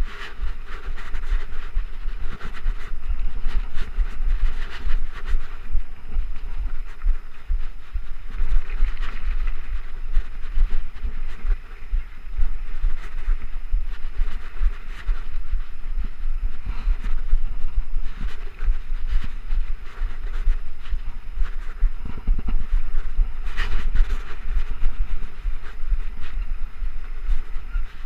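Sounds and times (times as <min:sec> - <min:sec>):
bike tyres rolling on dirt: 0:00.0 - 0:28.0
wind rumble on microphone: 0:00.0 - 0:28.0.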